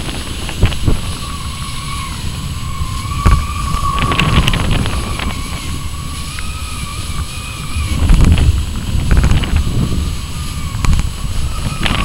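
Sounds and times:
strong wind buffeting microphone: 0.0 - 12.0
steady thin whistle: 1.1 - 8.3.

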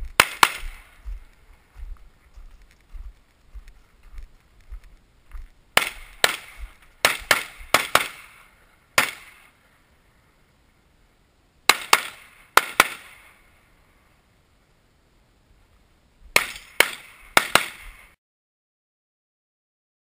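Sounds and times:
pistol shots with echo: 0.2 - 1.0, 5.8 - 9.6, 11.7 - 13.4, 16.4 - 18.1.

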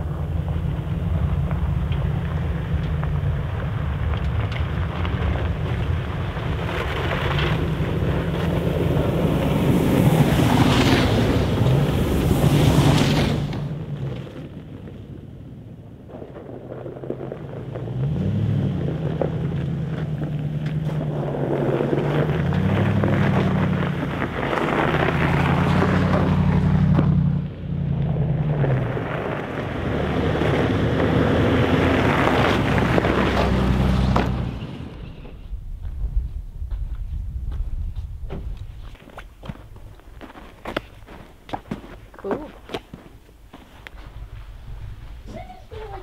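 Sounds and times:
wind and tyre noise: 0.0 - 46.0
vehicle engine revving: 16.9 - 38.6.

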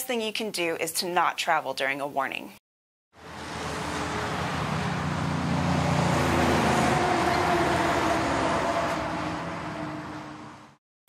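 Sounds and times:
steady rushing roar: 3.2 - 10.8.

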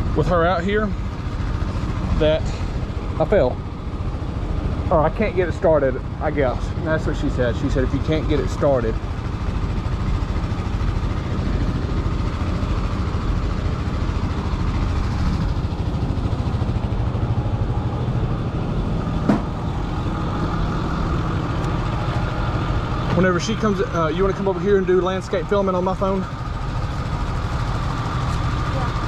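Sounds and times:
truck engine idling: 0.0 - 29.0.

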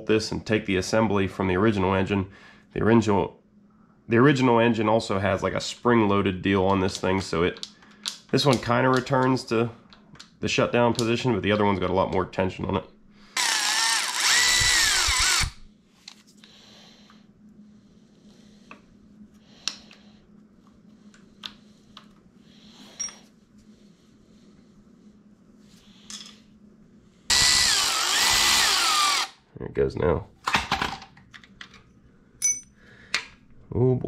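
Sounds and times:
cordless ratchet whining: 13.4 - 15.7, 27.3 - 29.4.

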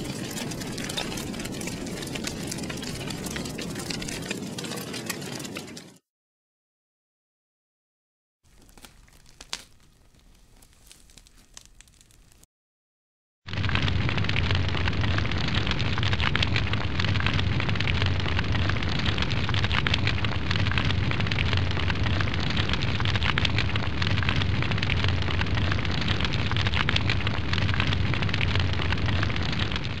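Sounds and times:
loud crackling rumble: 0.0 - 6.0, 13.5 - 30.0.

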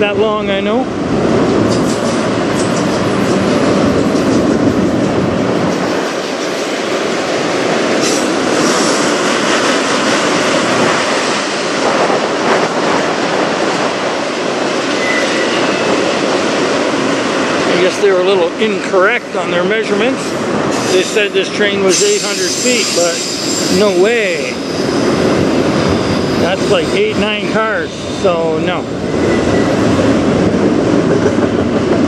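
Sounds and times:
train wheels rumbling on rail: 0.0 - 32.0
clacks over rail joints: 1.6 - 14.9.

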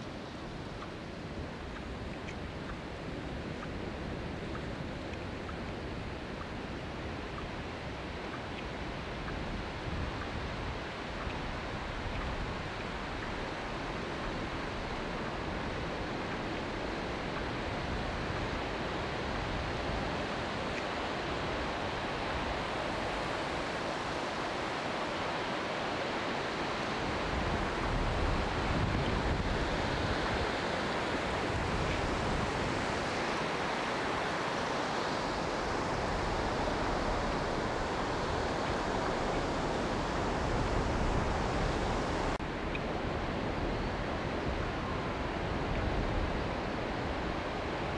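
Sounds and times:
surf washing on a beach: 0.0 - 47.9
wind buffeting microphone: 26.7 - 47.9.

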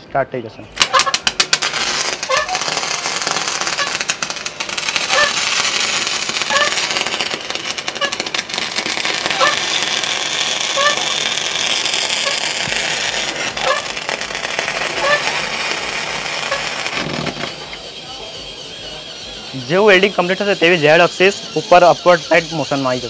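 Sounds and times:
welding arc crackling: 0.7 - 23.0.

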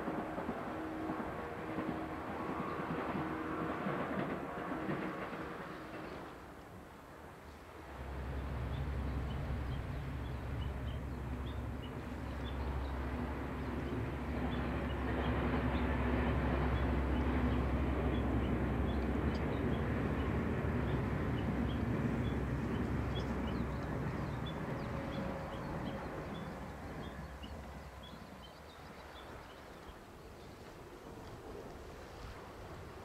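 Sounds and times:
distant locomotive engine drone: 0.0 - 33.0
train rolling by: 0.0 - 33.0.

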